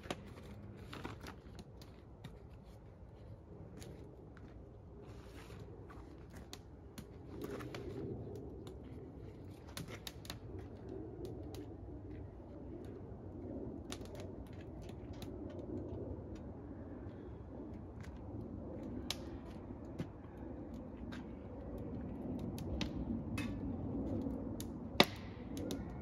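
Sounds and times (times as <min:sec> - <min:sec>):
campfire crackling and popping: 0:05.6 - 0:16.6, 0:17.8 - 0:26.0.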